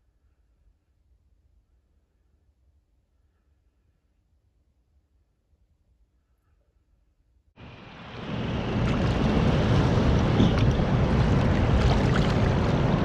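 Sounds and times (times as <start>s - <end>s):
small waves on sandy beach: 7.6s - 13.0s
wind buffeting microphone: 7.6s - 13.0s.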